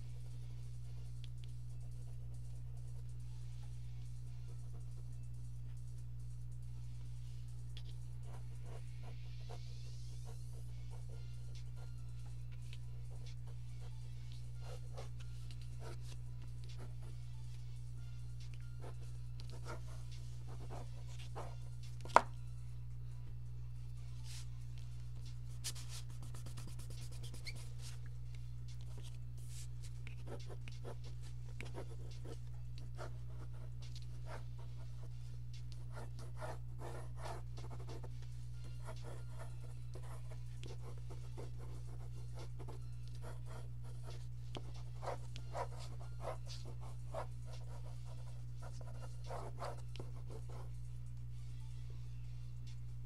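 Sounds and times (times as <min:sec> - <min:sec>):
low electrical hum: 0:00.0 - 0:53.0
pencil scratching on paper: 0:07.8 - 0:17.2, 0:18.8 - 0:22.2, 0:25.5 - 0:28.0, 0:28.8 - 0:50.7.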